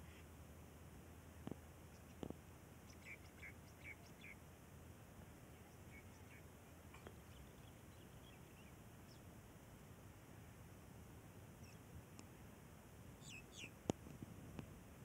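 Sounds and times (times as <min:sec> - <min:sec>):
faint bird chirps: 0:00.0 - 0:00.4, 0:01.8 - 0:04.4, 0:05.4 - 0:09.4, 0:11.6 - 0:11.9, 0:13.2 - 0:13.9
faint click: 0:12.1 - 0:12.3.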